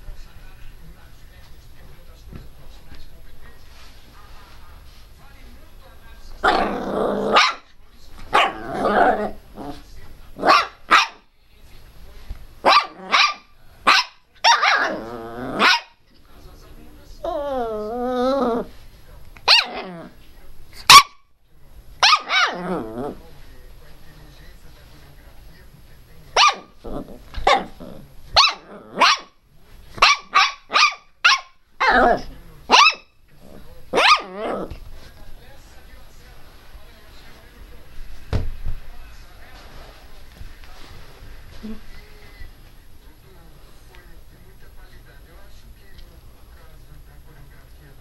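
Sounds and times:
dog growling: 0:06.4 - 0:07.6, 0:08.4 - 0:09.9, 0:14.6 - 0:15.8, 0:17.2 - 0:18.7, 0:19.6 - 0:20.2, 0:22.4 - 0:23.2, 0:26.8 - 0:29.1, 0:31.8 - 0:32.4, 0:33.4 - 0:34.8
dog barking: 0:07.3 - 0:07.7, 0:08.3 - 0:09.4, 0:10.4 - 0:11.3, 0:12.6 - 0:15.0, 0:15.6 - 0:16.0, 0:19.4 - 0:19.9, 0:20.9 - 0:21.2, 0:22.0 - 0:22.6, 0:26.4 - 0:26.8, 0:27.4 - 0:27.8, 0:28.4 - 0:29.4, 0:30.0 - 0:33.1, 0:33.9 - 0:34.4
puppy yapping: 0:07.3 - 0:07.7, 0:08.3 - 0:09.4, 0:10.4 - 0:11.2, 0:12.6 - 0:16.0, 0:19.4 - 0:20.1, 0:22.0 - 0:22.7, 0:26.4 - 0:26.7, 0:28.4 - 0:29.4, 0:30.0 - 0:33.1, 0:34.0 - 0:34.7.

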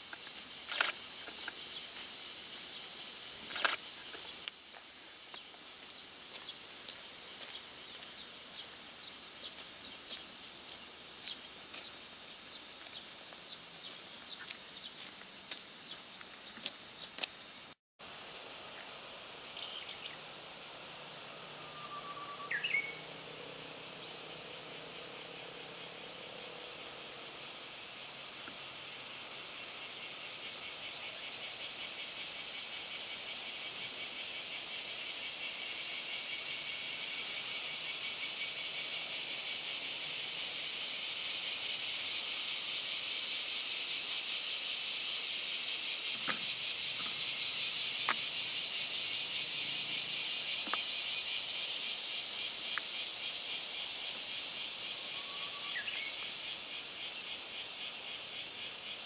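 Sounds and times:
cicadas buzzing: 0:00.0 - 0:59.0
faint whistled bird note: 0:21.6 - 0:23.0.

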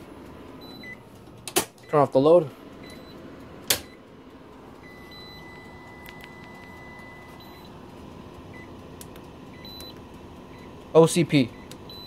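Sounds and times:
low steady hum: 0:00.0 - 0:12.0
electronic alarm beep: 0:00.6 - 0:01.0, 0:02.8 - 0:03.2, 0:04.8 - 0:07.7, 0:09.6 - 0:10.7, 0:11.6 - 0:12.0.

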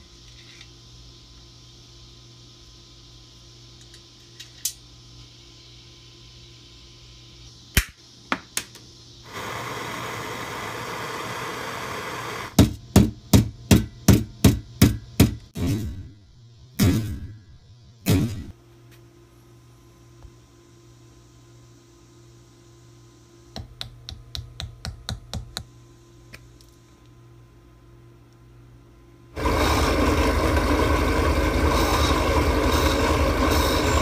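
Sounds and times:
torch flame hissing: 0:09.1 - 0:12.6, 0:29.4 - 0:34.0.

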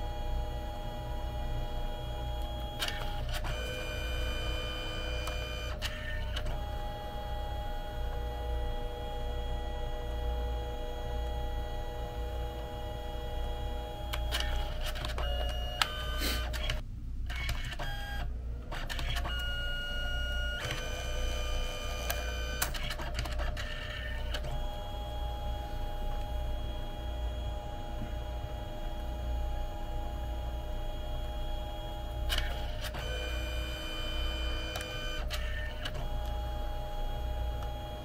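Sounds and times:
low steady hum: 0:00.0 - 0:22.9
printer motor whine: 0:00.0 - 0:38.0.

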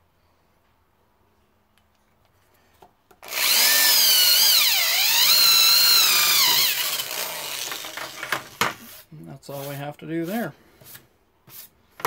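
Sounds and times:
electric drill drilling metal: 0:03.2 - 0:08.6.

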